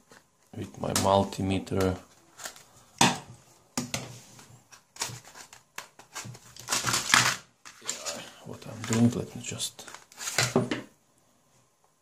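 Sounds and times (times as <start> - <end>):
paper and plastic rustling: 0.0 - 2.9, 4.0 - 10.8.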